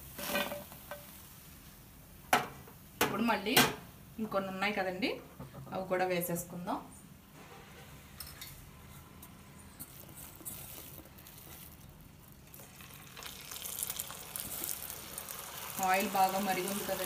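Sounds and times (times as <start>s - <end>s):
food sizzling in hot oil: 9.8s - 17.0s.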